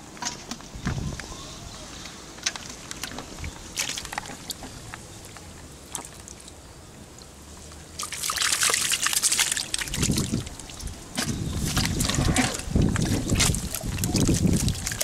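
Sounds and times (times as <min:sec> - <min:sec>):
muddy water splashing: 0:02.7 - 0:06.6, 0:07.7 - 0:15.0
water dripping: 0:02.9 - 0:12.1, 0:12.7 - 0:15.0.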